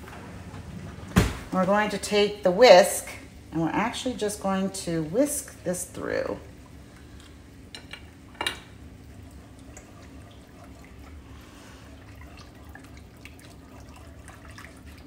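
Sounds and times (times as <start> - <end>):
liquid swishing: 9.2 - 15.0.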